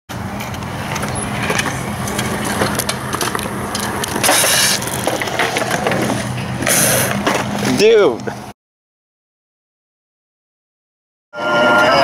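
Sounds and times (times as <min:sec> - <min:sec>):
loud rushing noise: 0:00.1 - 0:07.8
skateboards rolling and clacking: 0:00.1 - 0:08.5.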